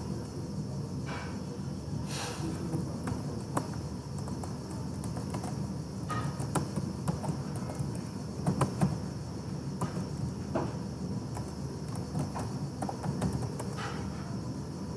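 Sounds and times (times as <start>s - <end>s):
low background hum: 0.0s - 14.9s
keyboard keys clicking: 3.0s - 9.0s, 11.3s - 13.9s.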